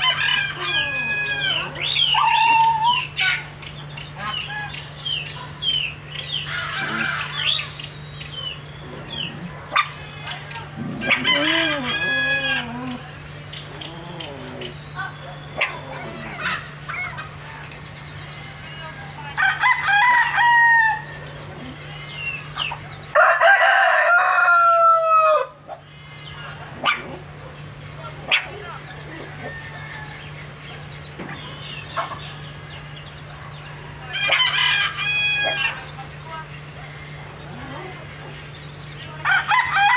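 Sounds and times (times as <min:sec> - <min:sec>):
rooster crowing: 0:00.0 - 0:03.5, 0:06.5 - 0:07.6, 0:09.1 - 0:13.1, 0:18.3 - 0:26.5, 0:29.0 - 0:30.6, 0:33.9 - 0:35.9, 0:39.2 - 0:39.9
steady background hum: 0:00.0 - 0:39.9.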